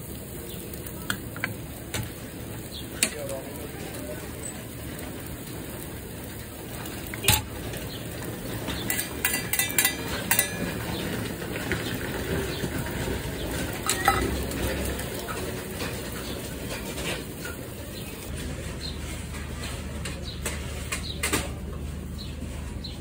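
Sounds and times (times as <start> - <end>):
metal tongs clinking on plate: 8.7 - 11.1, 13.8 - 14.5.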